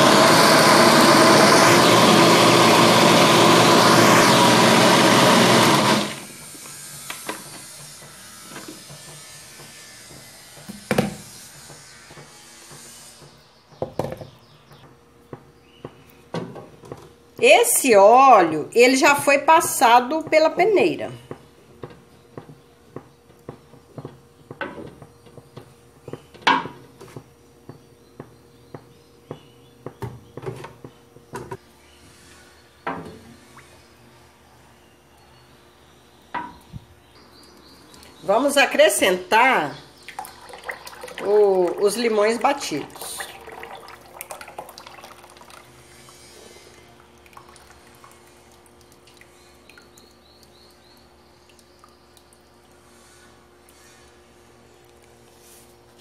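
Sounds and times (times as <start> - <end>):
liquid pouring into hot oil: 40.0 - 41.9, 43.0 - 50.6.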